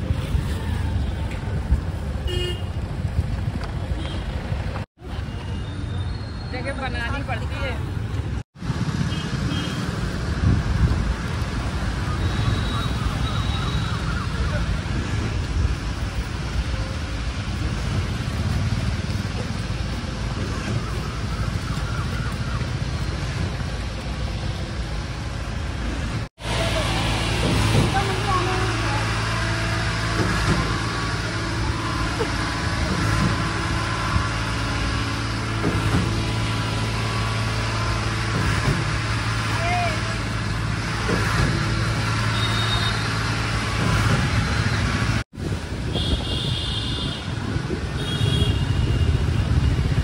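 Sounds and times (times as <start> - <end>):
road traffic hum: 0.0 - 50.0
wind buffeting microphone: 10.0 - 12.1, 44.1 - 50.0.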